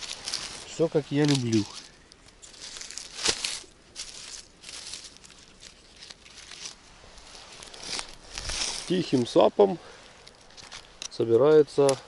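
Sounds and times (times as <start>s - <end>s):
pine needles and leaves rustling: 0.0s - 12.0s
mushroom stem snapping: 1.2s - 6.8s.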